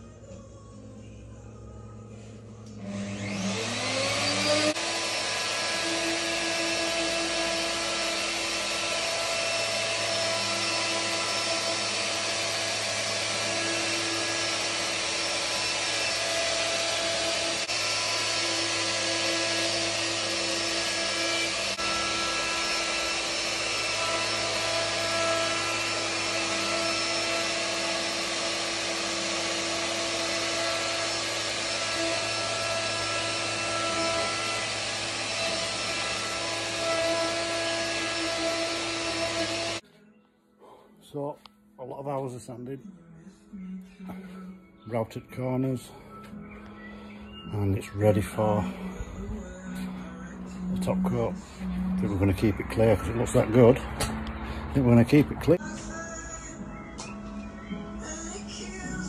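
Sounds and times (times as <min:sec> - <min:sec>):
electric router cutting wood: 0:02.7 - 0:39.8.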